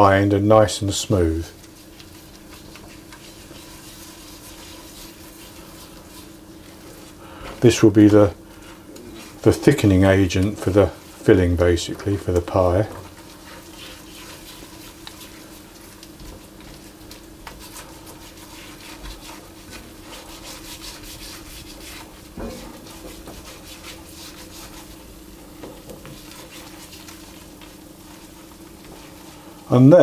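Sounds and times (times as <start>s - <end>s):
roux sizzling: 0.0s - 30.0s
steady low hum: 0.0s - 30.0s
spatula scraping a pan: 1.6s - 29.6s.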